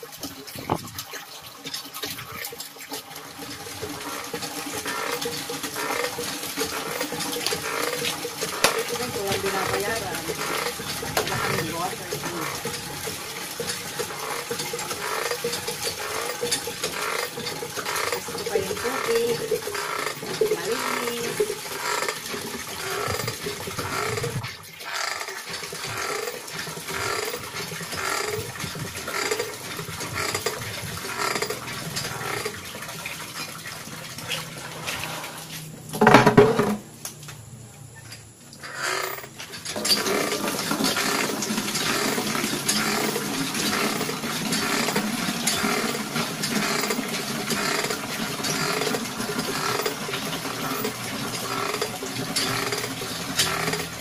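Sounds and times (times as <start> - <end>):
hand pump strokes: 0.0 - 36.8, 38.2 - 54.0
water gushing into plastic bucket: 0.0 - 36.9, 38.6 - 54.0
loud pump knock: 36.0 - 36.8.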